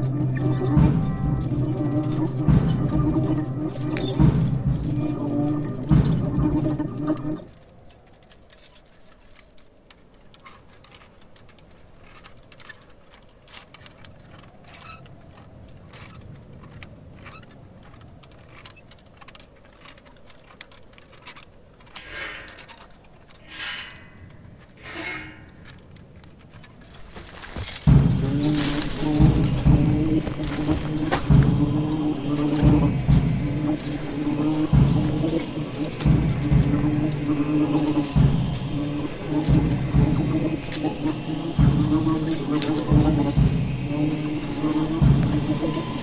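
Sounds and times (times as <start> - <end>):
dark film music: 0.0 - 7.5, 27.3 - 46.0
faint scattered clicks and ticks: 0.0 - 46.0.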